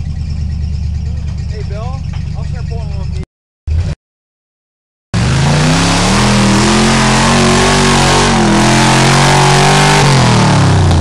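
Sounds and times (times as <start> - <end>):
buggy engine revving hard: 5.2 - 11.0.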